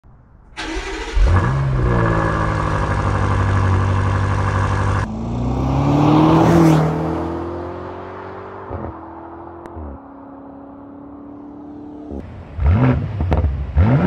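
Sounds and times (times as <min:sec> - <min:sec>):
car engine cranking and idling: 0:00.4 - 0:05.1
car accelerating: 0:00.6 - 0:14.0.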